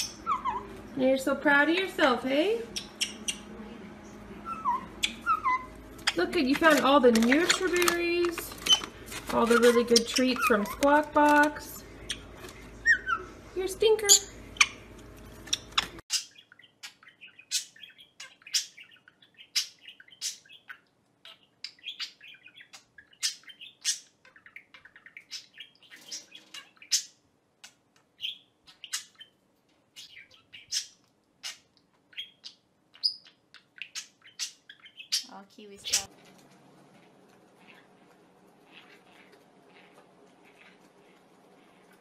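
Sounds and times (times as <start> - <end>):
budgerigar chirping: 0.0 - 0.7, 2.7 - 3.5, 4.4 - 6.7, 15.5 - 27.2, 28.2 - 36.1
soft twittering chatter: 2.6 - 8.9.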